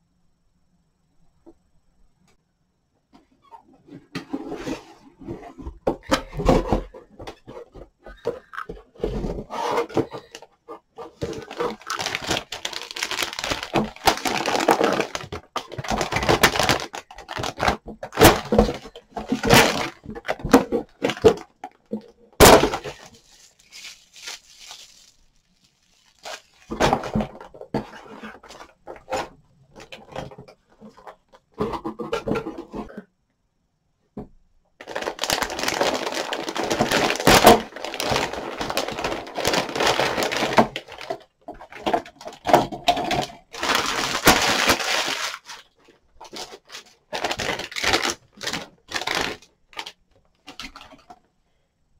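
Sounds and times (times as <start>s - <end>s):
plastic packaging crinkling: 11.0s - 21.5s, 22.4s - 27.5s, 34.8s - 51.1s.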